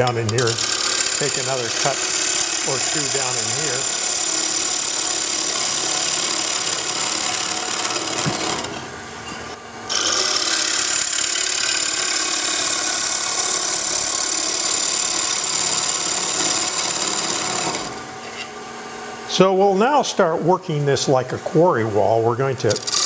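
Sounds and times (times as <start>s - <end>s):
lathe gouge cutting wood: 0.3s - 8.7s, 9.9s - 18.0s.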